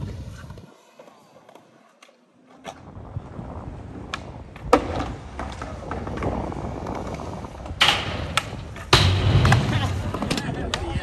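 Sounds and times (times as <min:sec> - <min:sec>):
skateboard wheels rolling on concrete: 0:00.0 - 0:11.0
skateboard clacking: 0:04.0 - 0:11.0.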